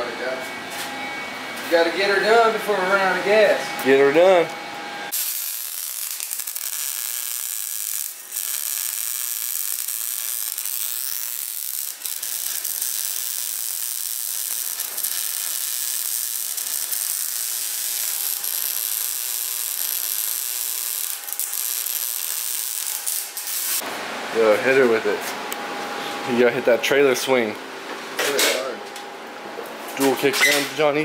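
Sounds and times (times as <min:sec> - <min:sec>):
welder arc hissing: 0:05.1 - 0:23.8.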